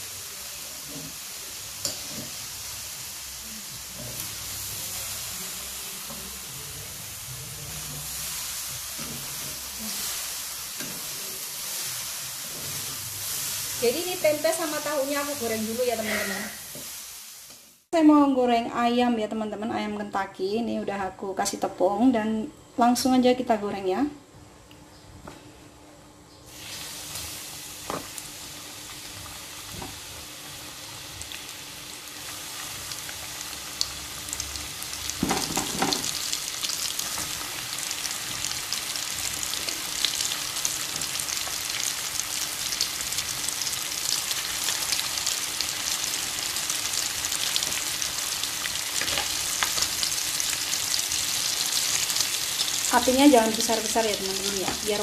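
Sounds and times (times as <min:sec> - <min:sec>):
chicken deep-frying in oil: 0:00.0 - 0:12.3, 0:26.5 - 0:55.0.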